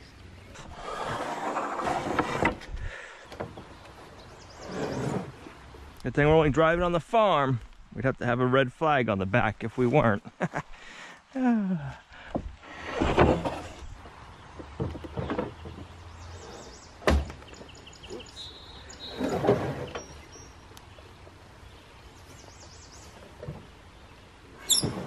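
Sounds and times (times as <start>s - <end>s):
beam scraping across wood: 0.6s - 3.7s, 4.4s - 5.6s, 12.6s - 13.9s, 19.0s - 20.2s
wood knocking on wood: 14.5s - 16.0s
sharp wooden thunk: 17.0s - 17.4s.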